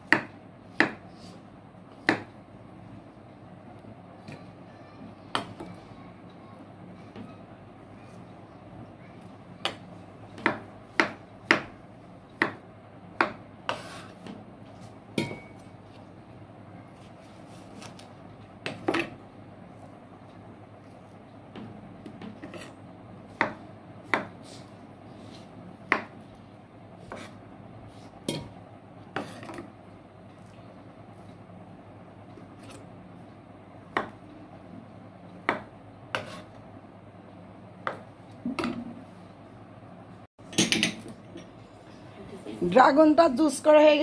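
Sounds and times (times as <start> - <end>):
soft rubbing and handling: 16.8 - 18.2.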